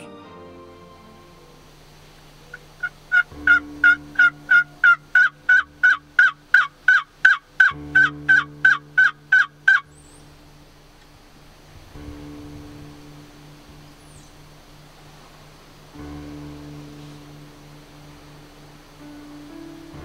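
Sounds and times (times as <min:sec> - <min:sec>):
turkey yelps: 0:02.5 - 0:10.2.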